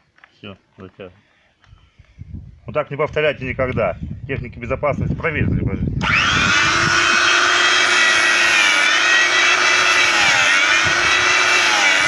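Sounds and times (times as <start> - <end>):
chain sharpener grinding wheel whining: 6.0 - 12.0.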